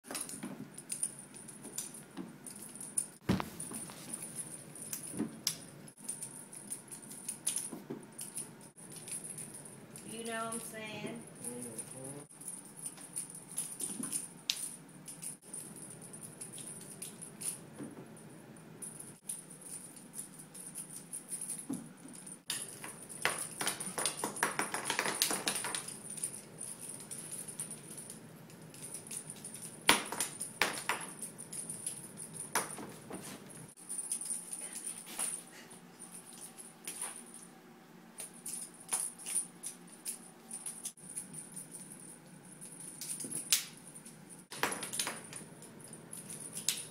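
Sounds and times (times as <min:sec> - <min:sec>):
cat toys rattling and jingling: 0:18.8 - 0:37.6.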